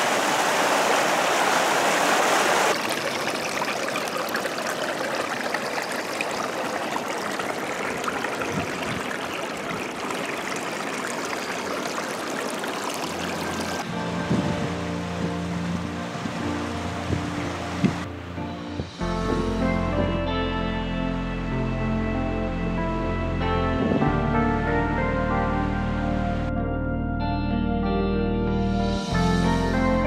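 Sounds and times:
stream rushing over stones: 0.0s - 13.9s
water trickling down rocks: 2.7s - 13.8s.

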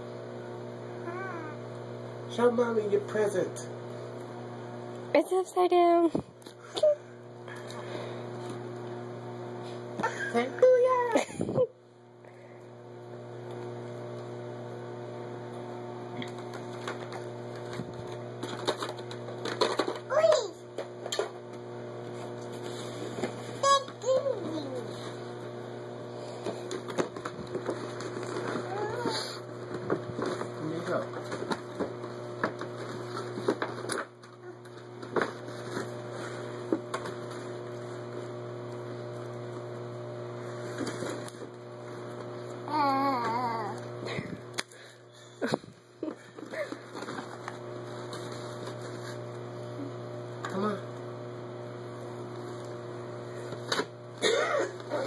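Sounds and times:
electrical hum: 0.0s - 55.0s
clicks and crackles: 16.2s - 21.6s.

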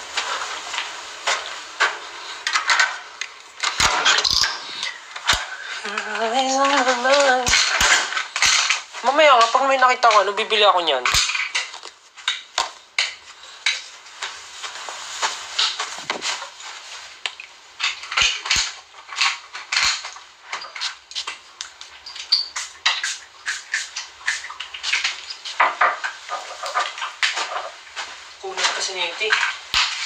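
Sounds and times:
small objects clicking and clinking: 1.3s - 10.2s, 17.2s - 27.7s.

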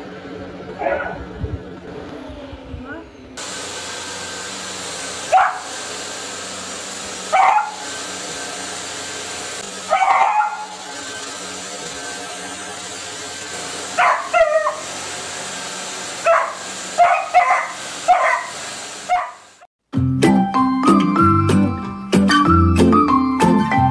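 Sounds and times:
puppy barking and yipping: 0.8s - 1.2s, 5.3s - 5.7s, 7.3s - 7.9s, 9.8s - 10.9s, 13.9s - 14.9s, 16.2s - 19.5s
vacuum cleaner humming: 3.3s - 19.7s
music: 19.9s - 23.9s.

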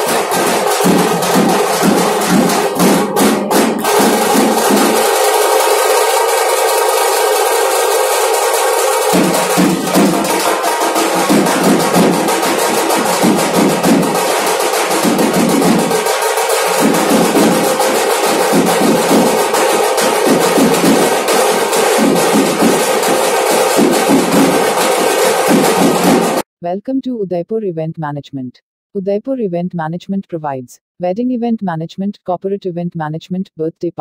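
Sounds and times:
fast dhol drumming: 0.0s - 26.4s.

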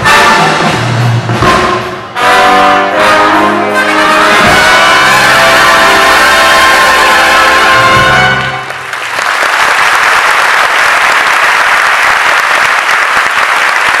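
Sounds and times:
big band and choir final chord: 0.0s - 8.7s
audience applauding: 7.4s - 14.0s.

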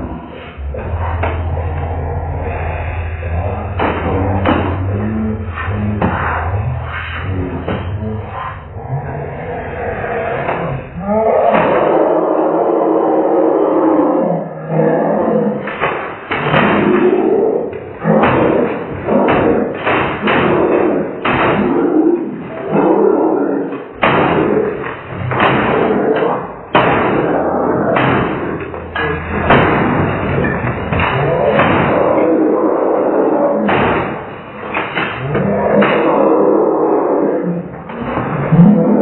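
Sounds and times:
objects slammed on desk: 29.4s - 32.2s, 33.6s - 36.2s.

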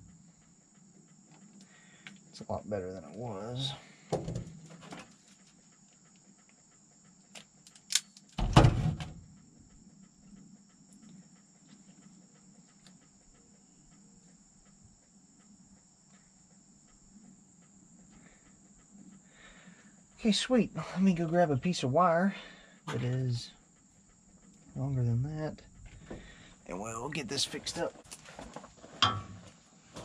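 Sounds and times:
insects trilling: 0.0s - 30.0s
loud thump: 4.1s - 4.5s, 8.4s - 9.2s
sharp clicks: 7.3s - 8.3s.

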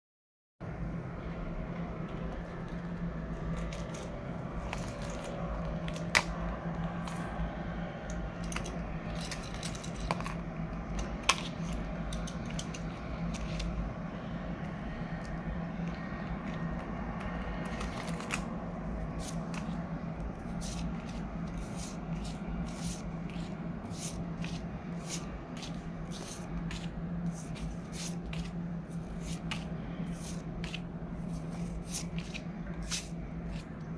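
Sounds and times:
low hum: 0.6s - 33.9s
plastic pouch and banknotes rustling: 3.5s - 6.3s, 17.6s - 33.8s.

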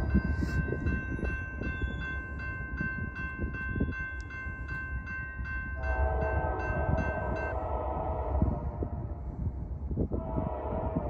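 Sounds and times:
railroad crossing bell ringing: 0.0s - 7.8s.

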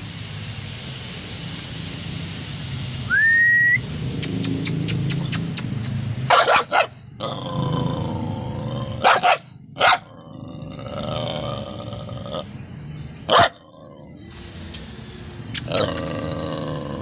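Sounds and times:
steady low hum: 0.0s - 17.0s
person whistling: 3.1s - 3.8s
dog barking aggressively: 6.3s - 7.0s, 9.0s - 10.2s, 13.3s - 13.7s
quick clicks: 15.5s - 16.1s.

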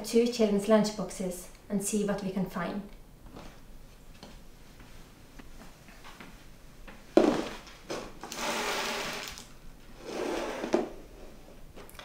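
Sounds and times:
plastic scraping across counter: 7.2s - 11.4s.

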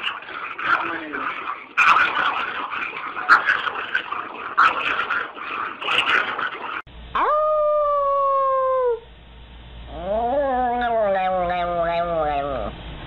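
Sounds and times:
chihuahua howling: 7.2s - 9.1s, 9.9s - 12.7s.

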